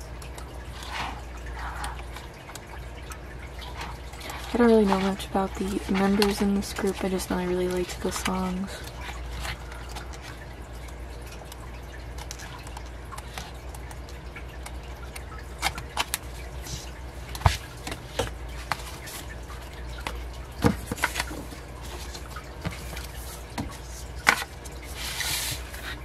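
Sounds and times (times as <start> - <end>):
steady low hum: 0.0 - 26.0
paper pages flipping: 20.8 - 26.0.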